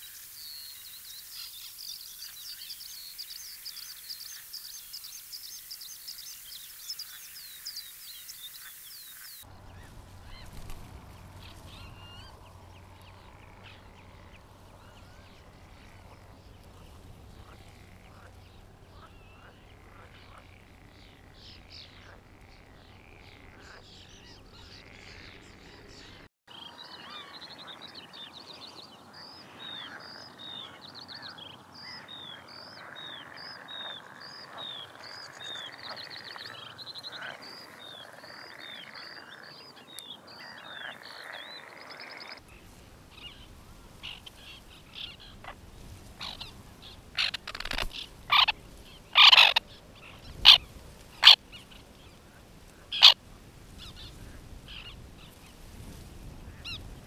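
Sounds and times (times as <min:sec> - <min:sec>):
bird chirps: 0:00.0 - 0:16.2, 0:47.2 - 0:51.7
background bird chorus: 0:00.0 - 0:57.0
loud harsh bird calls: 0:46.2 - 0:51.4, 0:52.9 - 0:53.2.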